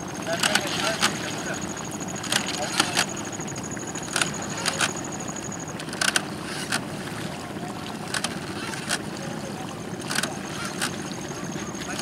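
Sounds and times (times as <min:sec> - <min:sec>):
faint high whine: 0:00.0 - 0:06.8, 0:09.4 - 0:12.0
steady low outdoor noise: 0:00.0 - 0:12.0.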